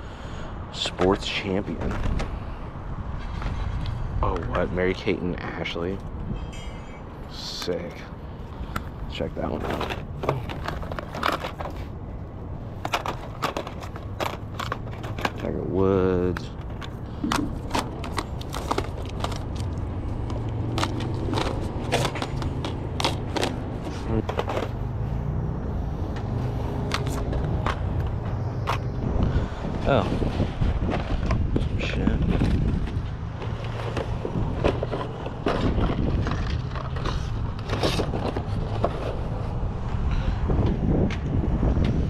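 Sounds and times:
steady low rumble: 1.4s - 42.0s
plastic cases clacking: 8.7s - 11.9s, 12.7s - 24.8s.

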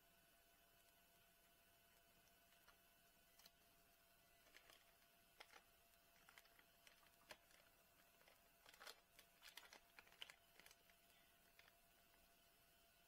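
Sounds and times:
plastic bag crinkling: 2.4s - 12.4s.

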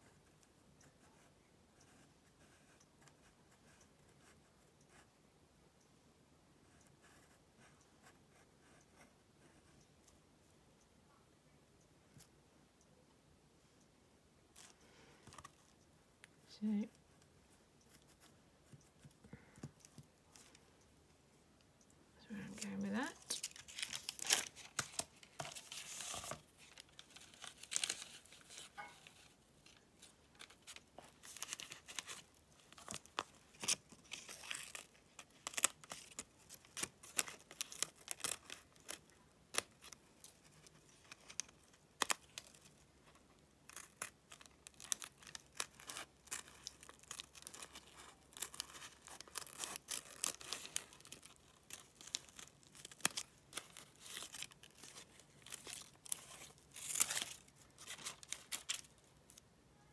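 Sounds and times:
paper and fabric crinkling: 22.5s - 59.4s.

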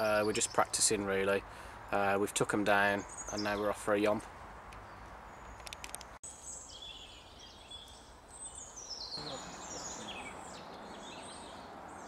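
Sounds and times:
birds singing: 0.0s - 12.0s
descending bird trill: 8.9s - 11.7s.

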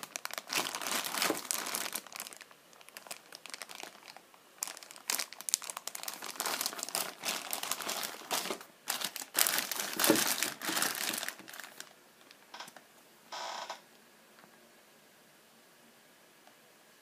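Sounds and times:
plastic bags crinkling: 0.0s - 12.7s.

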